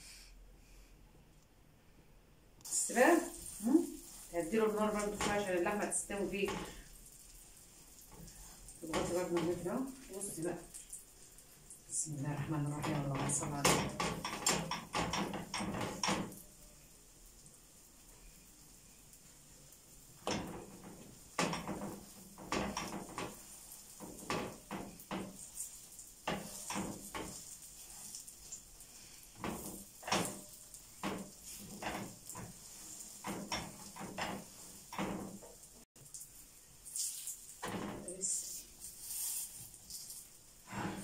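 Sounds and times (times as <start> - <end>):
faint sizzle of frying: 2.6 - 41.0
spatula scraping frying pan: 2.9 - 10.6, 20.2 - 35.7, 40.6 - 41.0.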